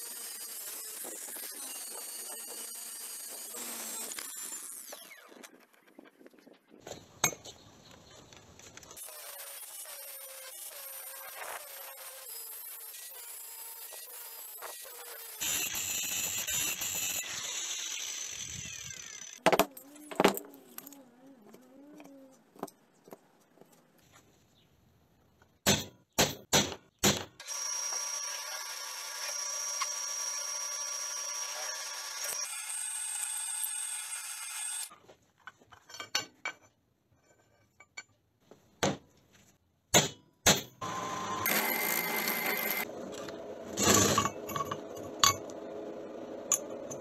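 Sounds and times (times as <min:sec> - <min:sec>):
abrasive disc grinding metal: 0:40.8 - 0:47.0.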